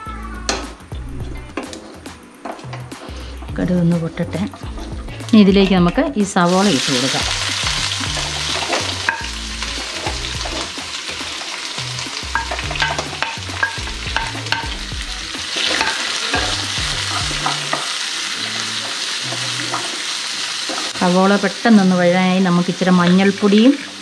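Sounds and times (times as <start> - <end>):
onions sizzling in hot oil: 2.7 - 24.0
spoon clicking and scraping pan: 8.1 - 9.3, 12.3 - 14.8, 15.5 - 18.0, 18.8 - 20.0.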